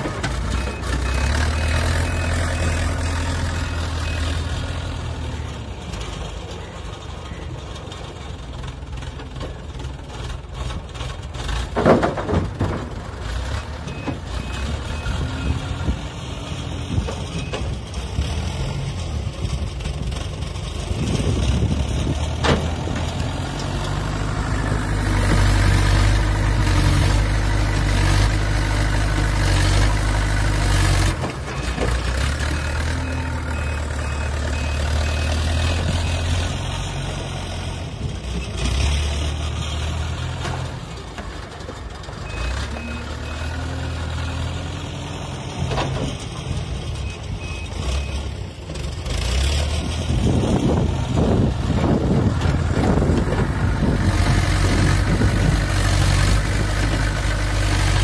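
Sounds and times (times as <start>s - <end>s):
diesel engine working under load: 0.0s - 58.0s
reversing beep: 0.5s - 5.6s, 13.9s - 16.0s, 17.3s - 17.7s, 32.4s - 36.4s, 42.2s - 44.0s, 47.0s - 48.3s.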